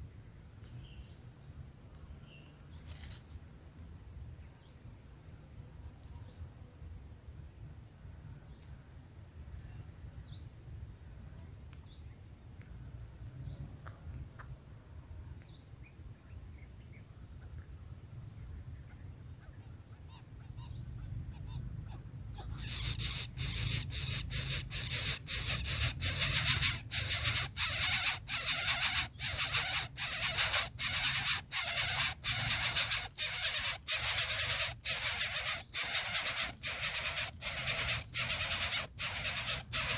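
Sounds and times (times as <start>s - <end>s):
faint pulsing insect buzz: 14.9s - 39.9s
nestlings hissing rasps: 22.4s - 39.9s.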